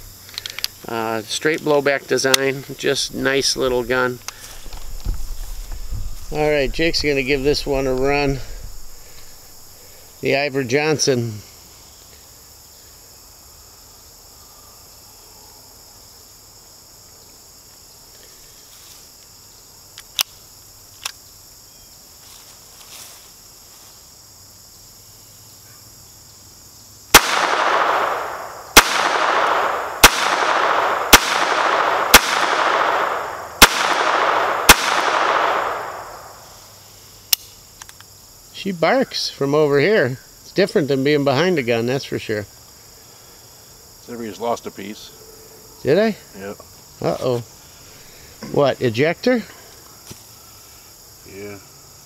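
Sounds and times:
pistol shots: 27.1 - 36.4.

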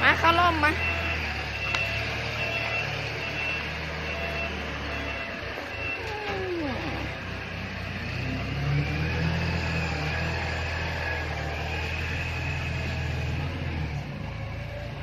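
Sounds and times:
low engine-like hum: 0.0 - 15.0
brief falling whine: 4.9 - 7.4.

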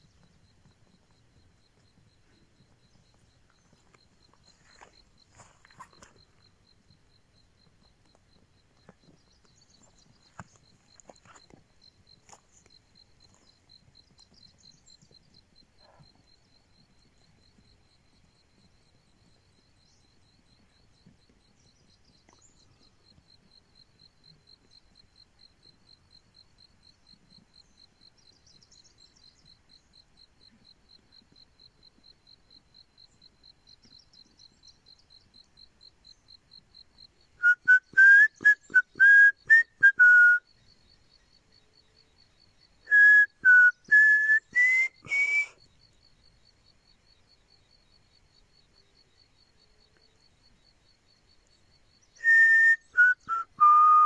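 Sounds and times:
high insect trill: 0.1 - 54.0
whistled notes: 37.4 - 40.4, 42.9 - 45.5, 52.2 - 54.0.

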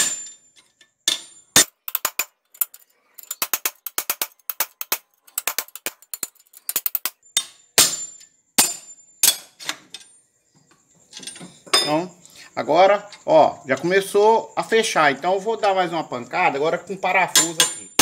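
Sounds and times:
chisel tapping on metal: 1.1 - 8.0, 17.3 - 18.0.

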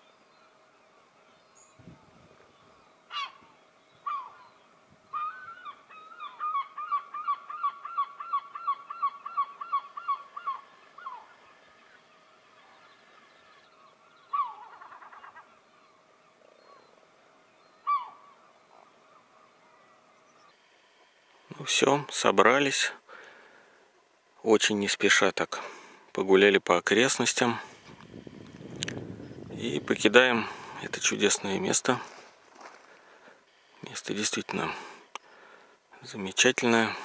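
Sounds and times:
large bird calling loudly: 2.7 - 17.0, 17.6 - 20.7.

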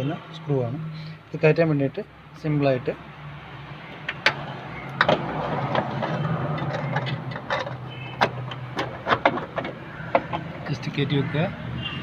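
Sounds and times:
rubbing and scraping: 5.0 - 10.7.

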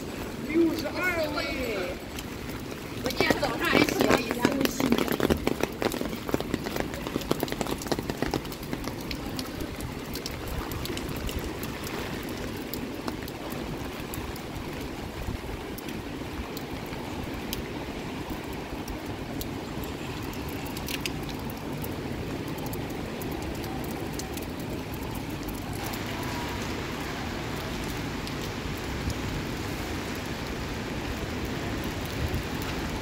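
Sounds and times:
drips: 0.0 - 29.2
rain splashing on pavement: 0.0 - 33.0.

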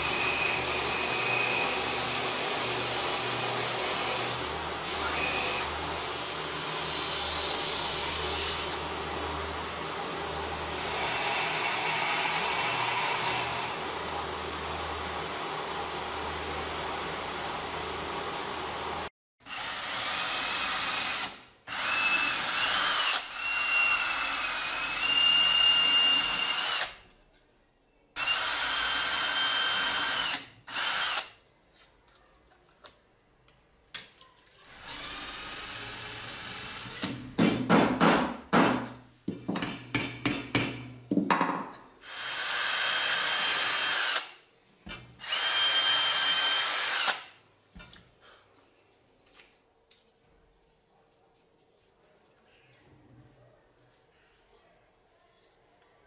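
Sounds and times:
cordless drill motor whine: 34.8 - 37.0, 45.2 - 47.2.

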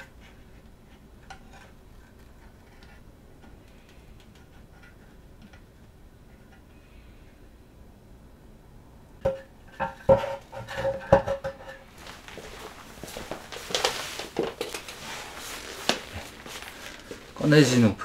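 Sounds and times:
scraping and rustling handling noise: 9.7 - 17.9.

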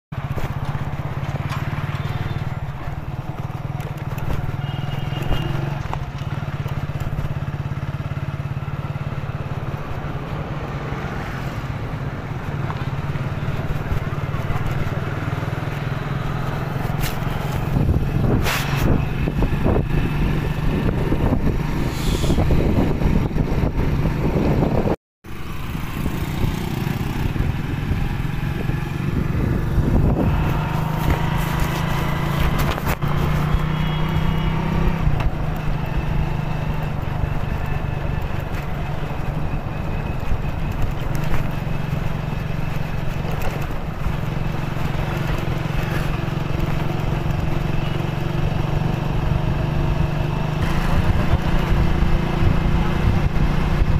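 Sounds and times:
motorcycle engine running: 0.1 - 53.9
rushing wind noise: 11.6 - 25.0, 25.6 - 53.9.

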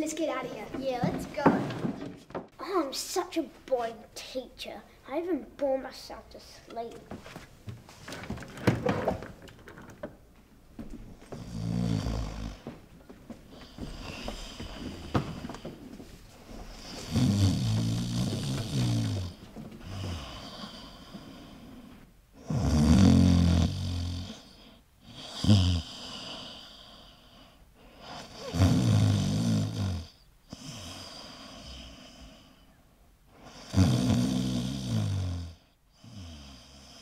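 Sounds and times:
quiet breathing: 4.7 - 5.2, 11.1 - 22.6, 23.6 - 33.9
person snoring: 11.3 - 12.8, 16.7 - 27.4, 28.0 - 32.6, 33.4 - 37.0.

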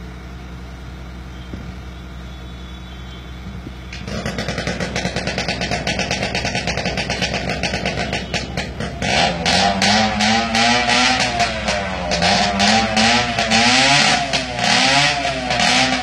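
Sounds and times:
motorcycle engine revving: 3.4 - 16.0.

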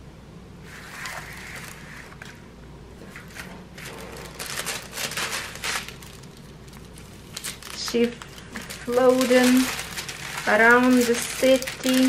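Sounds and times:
canvas and plastic film crinkling: 3.4 - 12.0.

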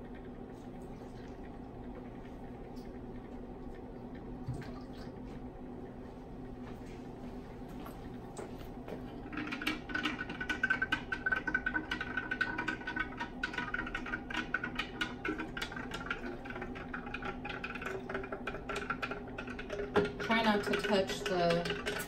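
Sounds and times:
liquid pouring and splashing: 4.4 - 5.3, 8.4 - 22.0.

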